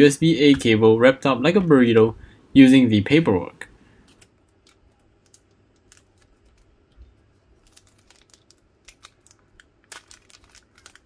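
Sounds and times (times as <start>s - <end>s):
plastic wrapper crinkling: 4.1s - 11.0s.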